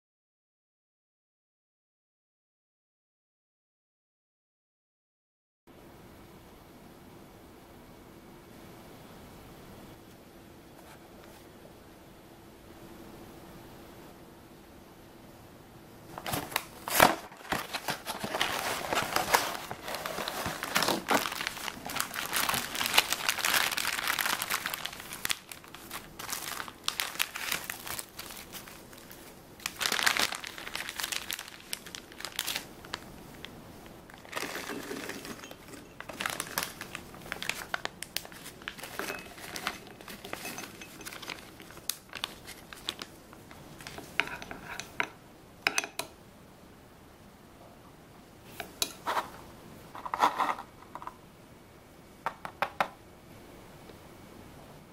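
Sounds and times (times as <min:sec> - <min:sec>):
plastic packaging crinkling: 0:16.1 - 0:44.9.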